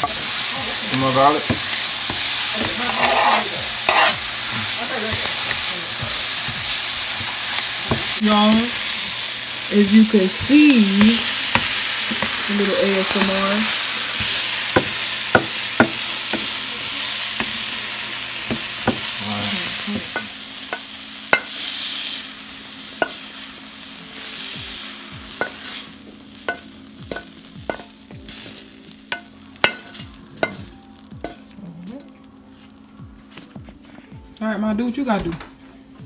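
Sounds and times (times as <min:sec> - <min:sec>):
vegetables sizzling in a frying pan: 0:00.0 - 0:33.1
spatula scraping vegetables: 0:00.1 - 0:09.3.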